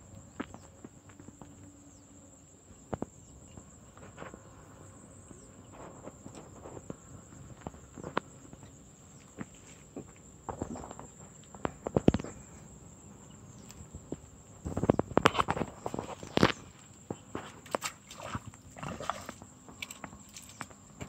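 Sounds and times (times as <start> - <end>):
high-pitched insect trill: 0.0 - 21.0
clicks and rustles: 13.6 - 21.0.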